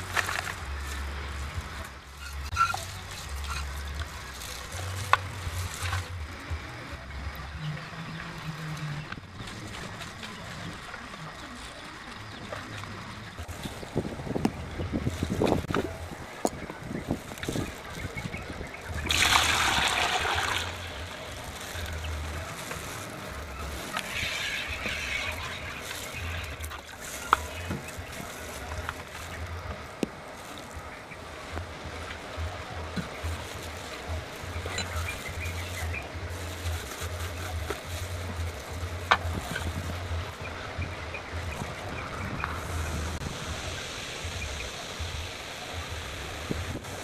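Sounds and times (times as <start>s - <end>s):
liquid pouring and splashing: 19.0s - 22.0s.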